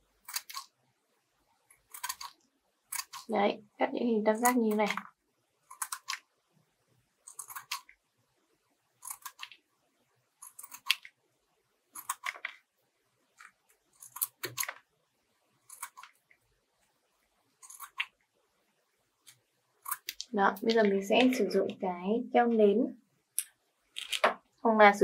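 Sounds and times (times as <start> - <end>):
scissors snipping paper: 0.2 - 0.7, 1.8 - 3.3.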